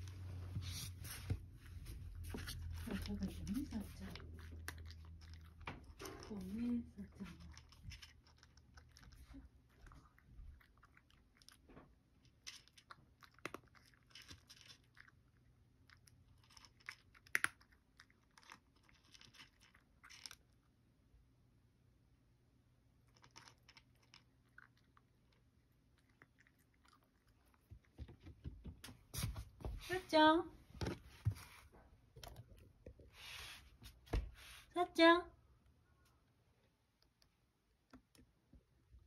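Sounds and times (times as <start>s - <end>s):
cat crunching dry kibble: 2.2s - 20.8s, 22.9s - 28.0s.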